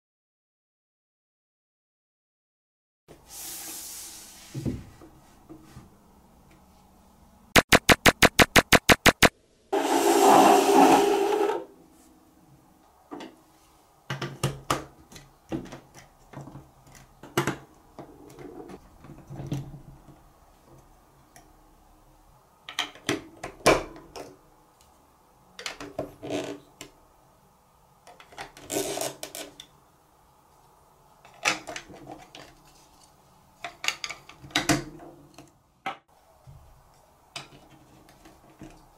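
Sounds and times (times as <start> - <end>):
rapid sharp clicks: 7.6 - 9.3
loud noisy burst: 7.6 - 10.8.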